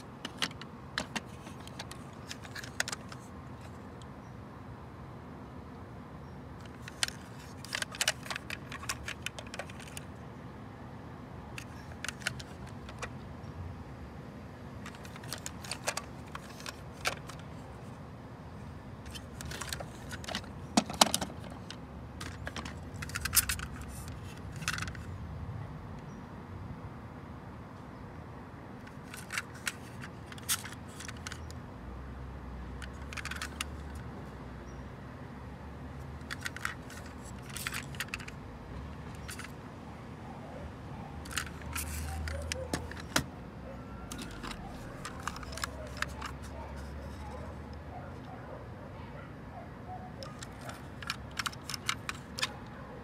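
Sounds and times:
plastic toy trucks clicking and rattling: 0.0s - 4.0s, 6.6s - 10.2s, 11.5s - 13.2s, 14.8s - 25.2s, 28.8s - 31.6s, 32.7s - 34.2s, 36.0s - 39.6s, 41.2s - 43.4s, 44.1s - 48.4s, 50.2s - 52.9s.

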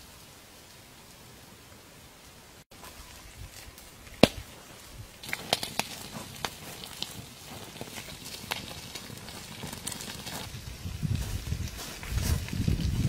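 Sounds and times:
wood fire crackling and popping: 2.8s - 13.0s.

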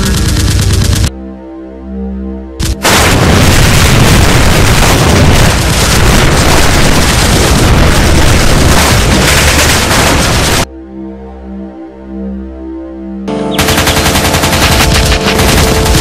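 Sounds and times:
explosion blast and rumble: 2.6s - 10.7s, 14.5s - 16.0s.

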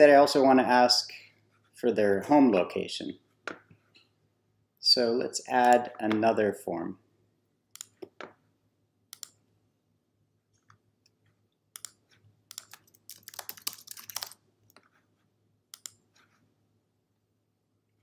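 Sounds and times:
keyboard typing: 11.8s - 15.0s.

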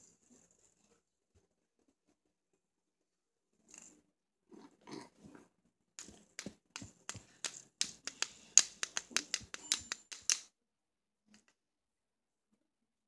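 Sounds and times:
fidget spinner clicking: 6.0s - 10.5s.

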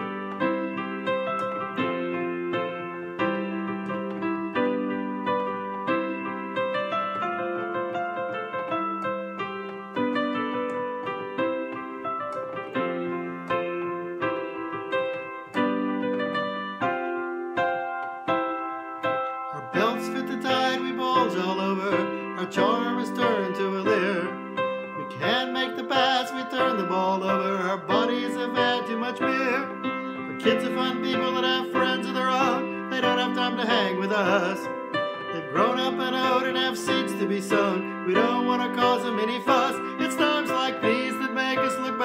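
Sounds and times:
piano chords: 0.0s - 42.0s
man singing: 19.6s - 42.0s.

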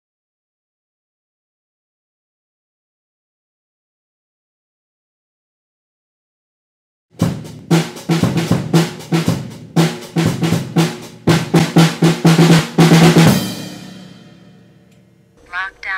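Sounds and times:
snare and bass drum beat: 7.2s - 14.0s.

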